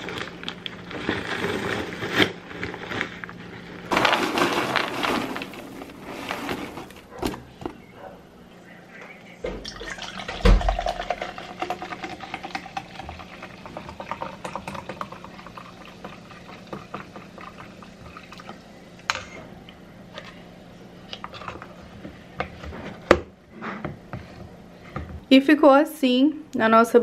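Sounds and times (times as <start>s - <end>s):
soda pouring and fizzing: 9.7s - 18.6s.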